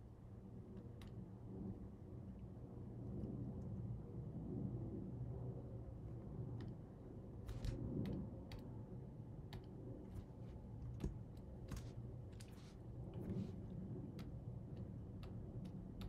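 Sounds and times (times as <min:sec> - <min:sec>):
low background hum: 0:00.0 - 0:16.0
mouse and keyboard clicking: 0:14.1 - 0:16.0.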